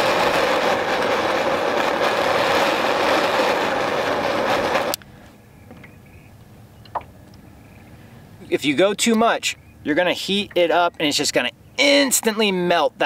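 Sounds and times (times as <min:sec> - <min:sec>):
jet torch hissing: 0:00.0 - 0:05.0.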